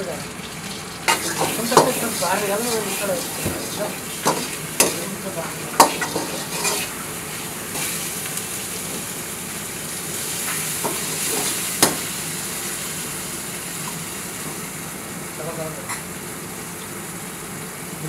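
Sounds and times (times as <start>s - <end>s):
chicken sizzling in oil: 0.0s - 18.0s
spatula scraping and knocking pan: 1.1s - 7.0s.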